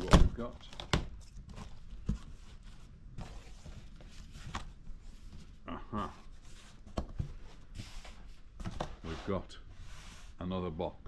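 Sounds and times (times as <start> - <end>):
cardboard rustling and scraping: 0.0 - 5.6, 6.2 - 10.4.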